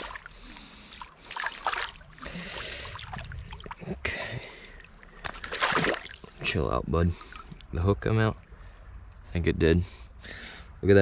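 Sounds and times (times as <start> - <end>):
fish splashing in water: 0.0 - 3.9, 4.5 - 6.5.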